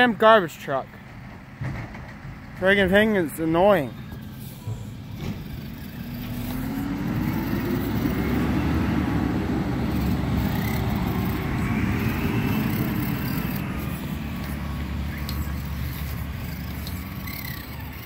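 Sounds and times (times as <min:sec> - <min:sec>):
garbage truck engine revving: 0:04.0 - 0:18.0.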